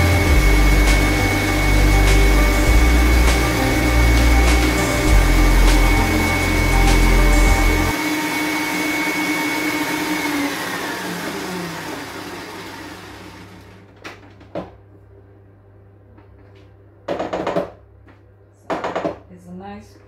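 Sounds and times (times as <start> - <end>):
stand mixer motor whine: 0.0 - 13.9.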